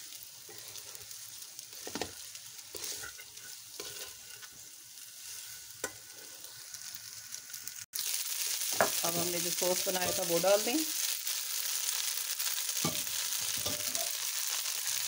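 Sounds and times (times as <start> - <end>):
food sizzling in a pan: 0.0 - 15.0
spatula scraping and knocking pan: 1.8 - 4.5, 9.9 - 10.5, 12.8 - 14.2.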